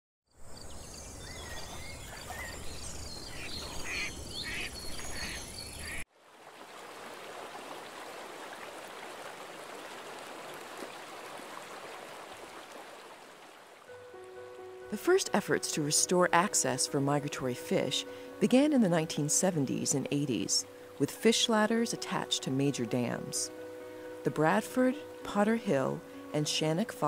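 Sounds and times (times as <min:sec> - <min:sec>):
chirping animal calls: 0:01.4 - 0:06.0
water rushing over rapids: 0:06.2 - 0:13.9.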